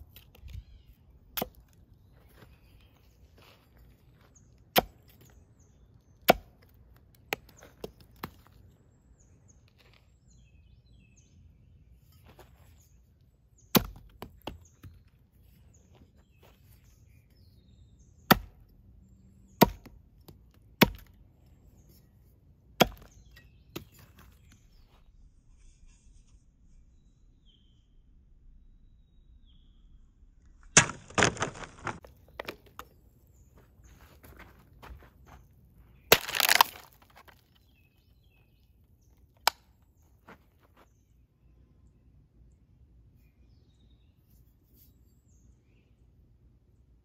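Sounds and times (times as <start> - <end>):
axe chopping into wood: 1.4 - 1.7, 4.7 - 5.2, 6.2 - 6.7, 13.7 - 15.0, 18.3 - 18.7, 19.6 - 20.0, 20.8 - 21.2, 22.8 - 24.0, 30.8 - 32.8, 36.1 - 37.0.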